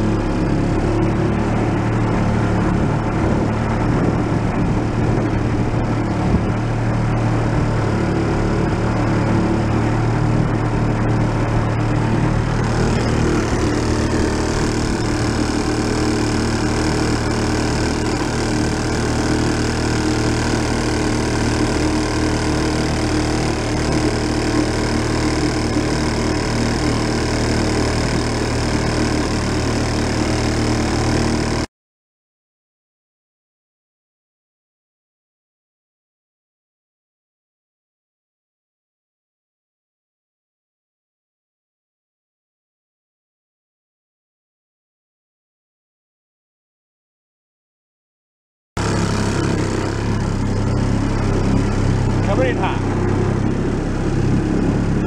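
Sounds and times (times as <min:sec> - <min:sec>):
boat wake splashing: 0:00.0 - 0:31.6, 0:48.8 - 0:55.0
outboard motor running: 0:00.0 - 0:31.7, 0:48.8 - 0:55.0.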